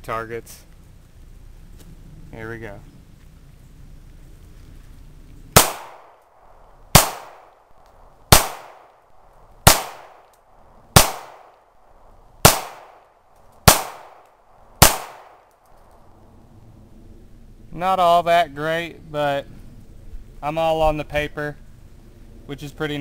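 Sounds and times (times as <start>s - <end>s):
pistol shots echoing: 5.6s - 6.2s, 6.9s - 7.6s, 8.3s - 9.0s, 9.6s - 10.3s, 10.9s - 11.6s, 12.4s - 15.5s.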